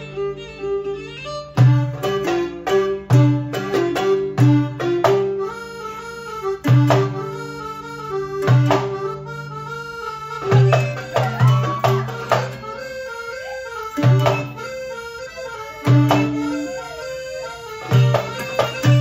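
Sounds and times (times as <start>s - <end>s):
band with accordion violin and guitar: 0.0s - 19.0s.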